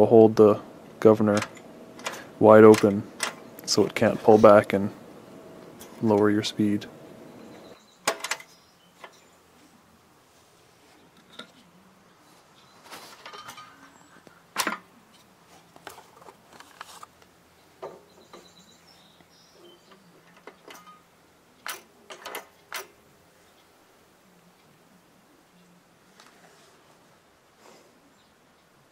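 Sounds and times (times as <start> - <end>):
brief rustle: 12.3 - 14.3, 15.1 - 17.3.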